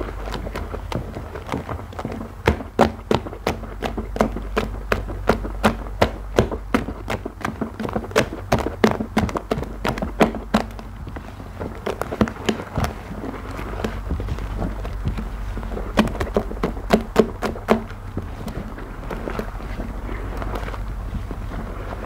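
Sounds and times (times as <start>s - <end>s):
squelching foam paste: 0.0s - 22.0s.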